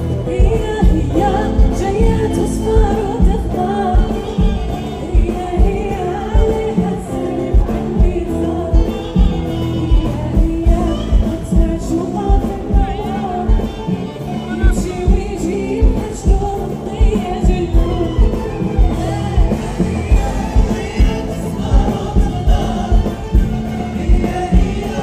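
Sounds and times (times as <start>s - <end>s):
band playing: 0.0s - 25.0s
steady drum beat: 0.0s - 25.0s
woman singing into microphone: 0.0s - 25.0s.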